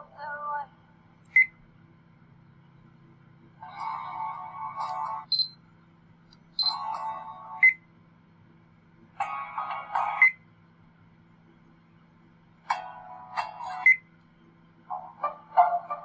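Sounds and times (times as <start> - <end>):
short high beeps: 5.3 - 5.6, 6.6 - 6.8.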